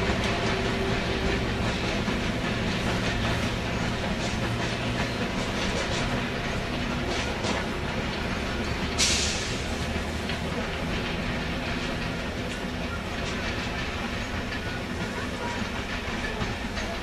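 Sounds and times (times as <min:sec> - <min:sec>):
train wheels clicking over rail joints: 0:00.0 - 0:17.0
short sharp hiss: 0:09.0 - 0:09.6.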